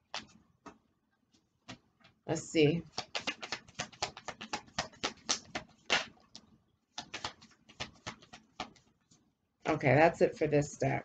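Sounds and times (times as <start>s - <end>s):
card snaps and taps: 3.0s - 6.4s, 7.0s - 8.7s.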